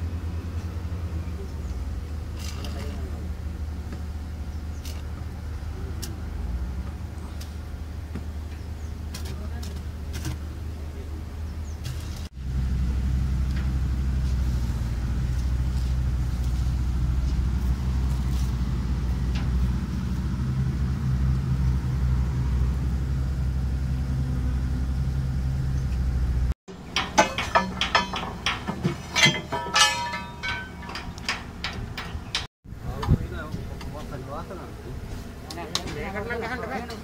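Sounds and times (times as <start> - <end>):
machinery low rumble: 0.0 - 35.4
metal clanks and knocks: 26.7 - 33.1.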